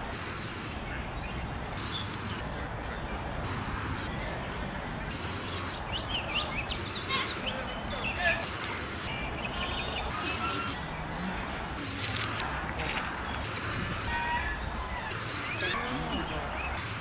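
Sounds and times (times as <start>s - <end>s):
outdoor background noise: 0.0s - 17.0s
high bird chirps: 3.4s - 17.0s.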